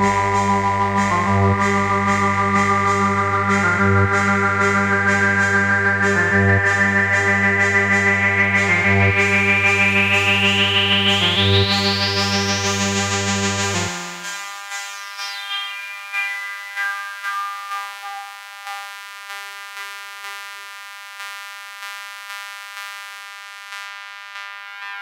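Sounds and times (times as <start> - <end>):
electronic synthesizer music: 0.0 - 19.2, 24.4 - 25.0
sustained high synth chord: 0.0 - 19.2.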